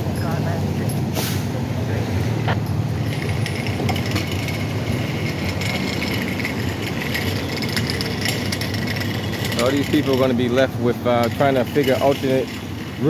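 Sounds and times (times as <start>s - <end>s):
low hum: 0.0s - 10.6s
vehicle engines idling: 0.0s - 13.0s
light rattles: 2.7s - 13.0s.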